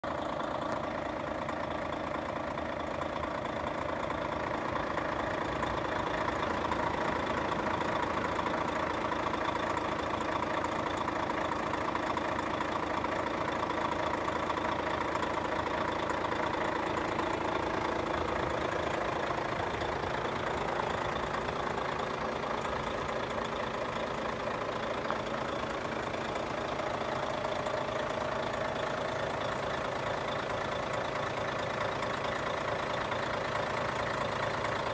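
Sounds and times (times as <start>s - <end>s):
diesel truck engine idling: 0.0s - 34.9s.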